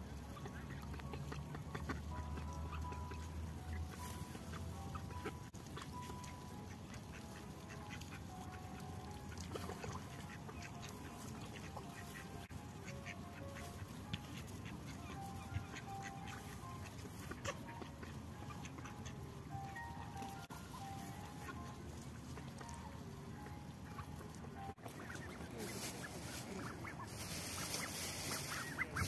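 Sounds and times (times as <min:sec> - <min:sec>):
duck calls: 0:09.5 - 0:20.2, 0:23.9 - 0:29.0
duck bills clicking on ground: 0:24.8 - 0:29.0.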